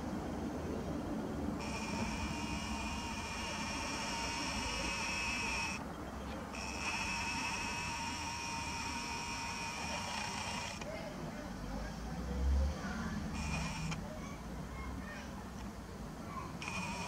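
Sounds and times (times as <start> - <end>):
camera zoom motor whining: 1.6 - 5.8, 6.5 - 10.9, 13.3 - 14.0, 16.6 - 17.0.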